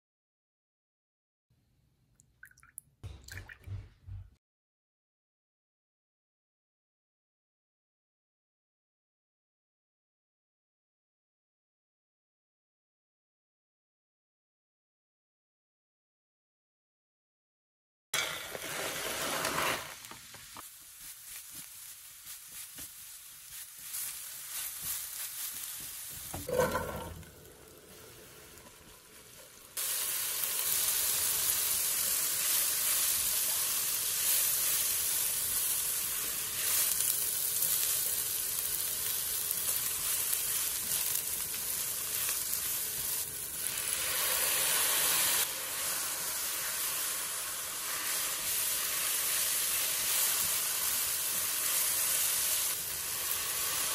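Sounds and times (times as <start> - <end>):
vegetables sizzling in oil: 18.2 - 53.9.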